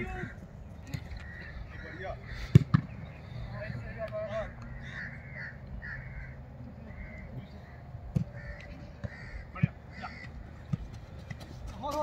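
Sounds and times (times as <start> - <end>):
crows cawing: 1.0 - 2.7, 4.2 - 10.8.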